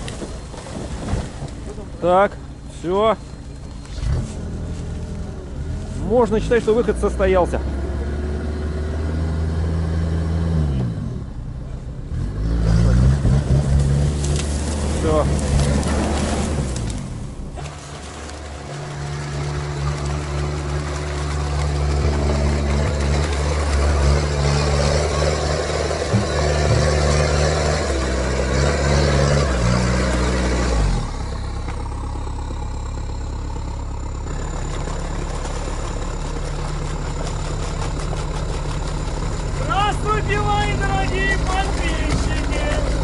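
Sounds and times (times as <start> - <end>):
diesel engine working hard: 0.0 - 43.0
branches scraping and cracking: 13.7 - 26.0.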